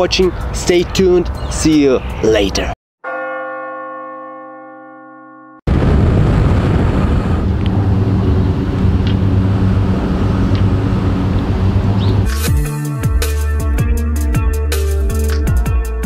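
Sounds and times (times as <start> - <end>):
bell tone: 3.0 - 5.6
wind buffeting microphone: 5.7 - 12.3
electronic music with a beat: 12.3 - 16.0.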